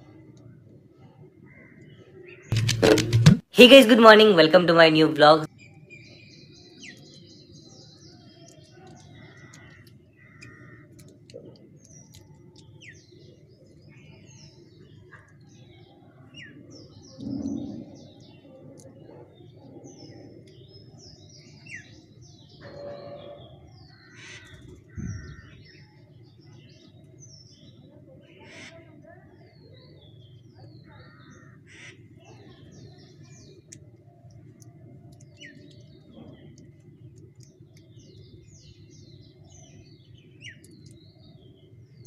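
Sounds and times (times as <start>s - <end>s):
birds chirping: 0.0s - 42.0s
steady low rumble: 24.8s - 25.6s.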